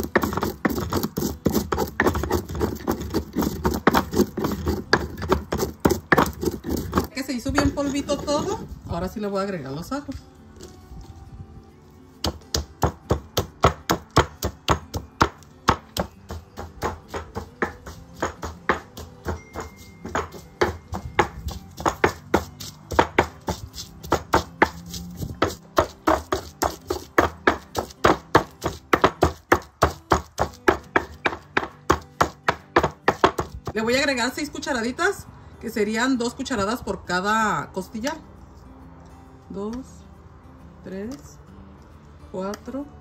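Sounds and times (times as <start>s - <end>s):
stone pestle pounding in mortar: 0.0s - 8.6s, 12.2s - 33.9s.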